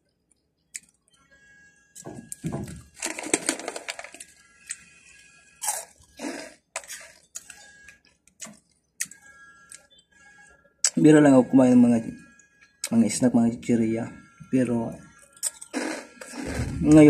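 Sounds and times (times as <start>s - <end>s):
crunching crisp snack sticks: 2.3s - 9.9s, 15.1s - 17.0s.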